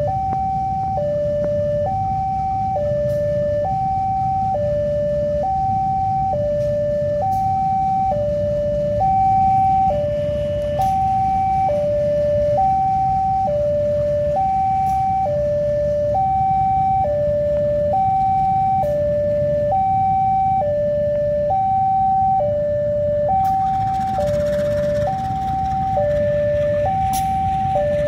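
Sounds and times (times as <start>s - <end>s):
level crossing two-tone alarm: 0.0s - 28.0s
train rumbling past: 23.6s - 28.0s.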